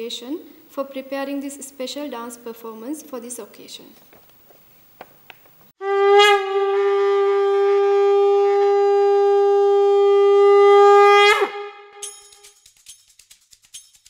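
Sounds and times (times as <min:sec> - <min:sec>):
conch shell blown: 0:05.8 - 0:12.4
faint percussion clicks: 0:12.0 - 0:14.0.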